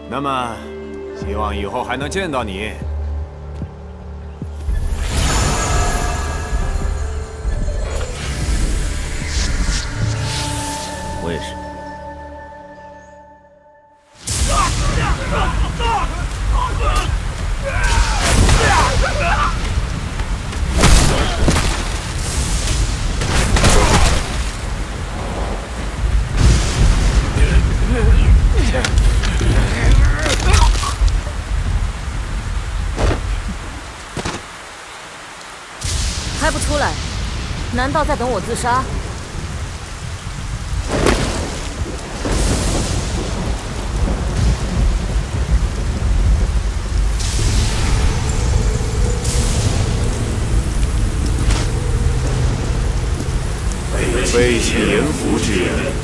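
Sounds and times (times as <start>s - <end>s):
heavy rain falling: 14.1s - 56.0s
sharp thunder crack: 14.2s - 29.1s, 38.8s - 55.0s
rumbling thunder: 14.2s - 30.2s, 35.8s - 54.5s
deep continuous rumble: 42.1s - 56.0s.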